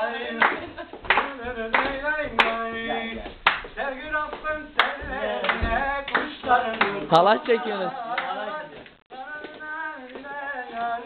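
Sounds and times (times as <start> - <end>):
hand-clapping in steady beat: 0.0 - 10.3
people singing: 0.0 - 11.0.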